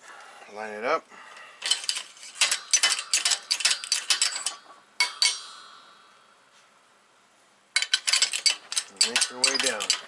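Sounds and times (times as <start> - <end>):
steel parts clicking and clinking: 1.6 - 6.0, 7.8 - 10.0.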